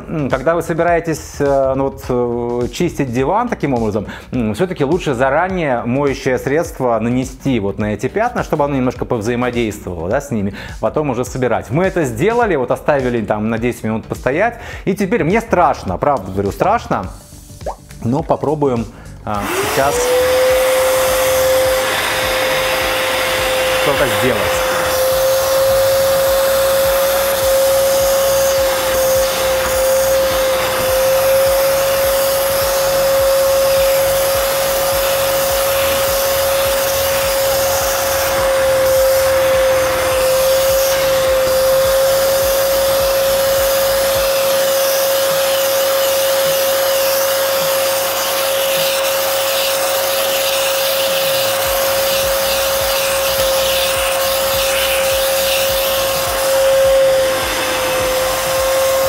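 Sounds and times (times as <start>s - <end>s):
vacuum cleaner whining: 19.3s - 59.0s
nozzle spraying and sucking on fabric: 19.4s - 59.0s.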